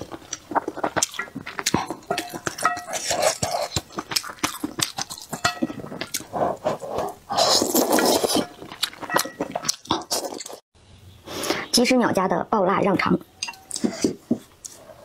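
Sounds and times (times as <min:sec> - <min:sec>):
slurping broth: 0:00.0 - 0:10.6
wet chewing and mouth clicks: 0:00.0 - 0:10.6
chopsticks clinking on metal bowl: 0:01.8 - 0:06.2.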